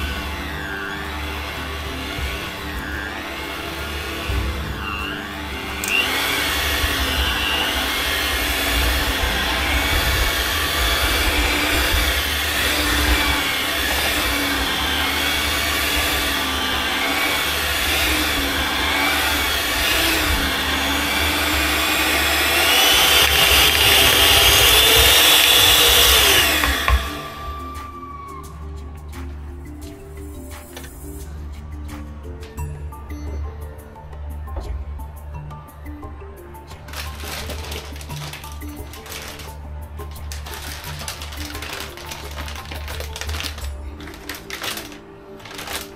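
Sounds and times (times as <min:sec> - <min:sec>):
electric hand mixer whine: 0:00.0 - 0:28.1.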